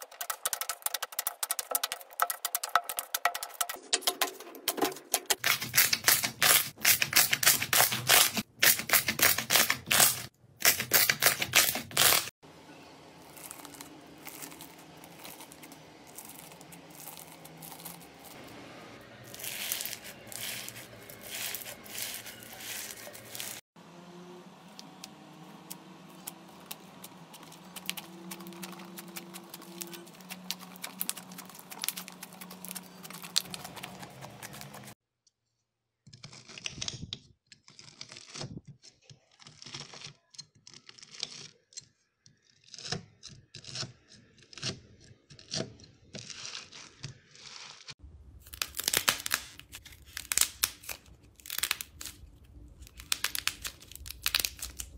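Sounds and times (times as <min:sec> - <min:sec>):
bead-filled slime crackling: 0:13.2 - 0:18.4, 0:19.2 - 0:23.7, 0:26.1 - 0:35.0, 0:46.2 - 0:54.9.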